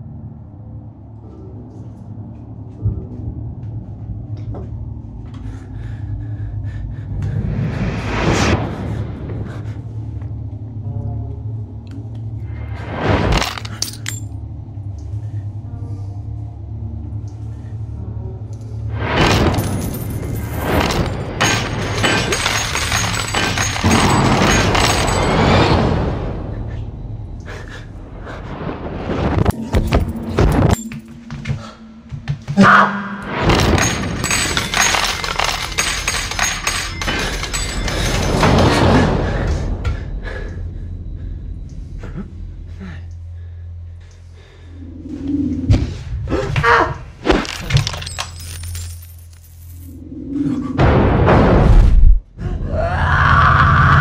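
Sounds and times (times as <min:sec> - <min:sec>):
low rumbling drone: 0:00.0 - 0:54.0
clattering and crashing effects: 0:12.7 - 0:14.3, 0:18.9 - 0:26.7, 0:28.4 - 0:40.2, 0:47.2 - 0:52.3.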